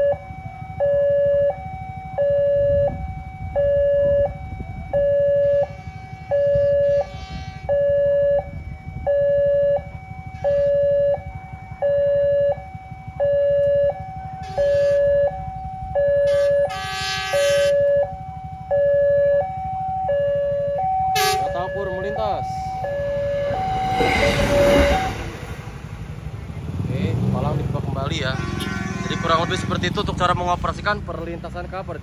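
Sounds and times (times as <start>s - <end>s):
level crossing two-tone alarm: 0.0s - 25.6s
high-pitched burst: 21.2s - 26.6s.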